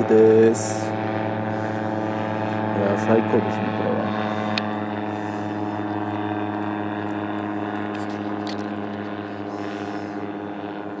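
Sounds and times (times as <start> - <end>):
ultralight aircraft engine and propeller: 0.0 - 11.0.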